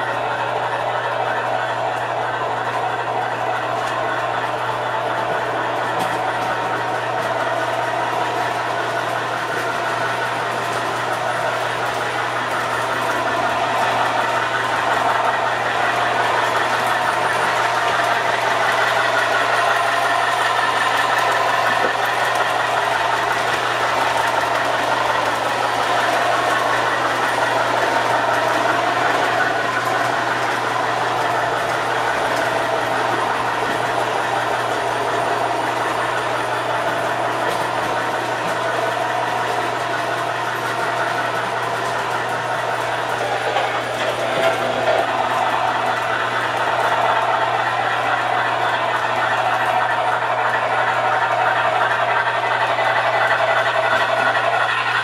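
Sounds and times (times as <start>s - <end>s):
model train rumbling on track: 0.0s - 55.0s.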